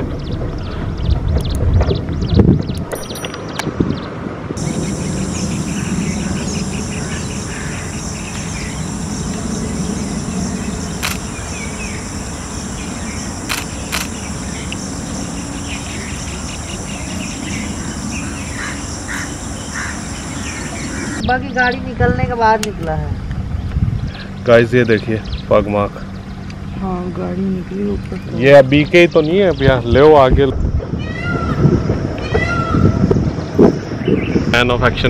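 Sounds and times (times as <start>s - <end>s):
high-pitched insect drone: 4.6s - 21.2s
faint bird chirps: 4.6s - 21.8s
low rumble: 4.6s - 24.2s
sharp clicks: 8.2s - 8.6s, 11.0s - 11.8s, 13.4s - 14.8s.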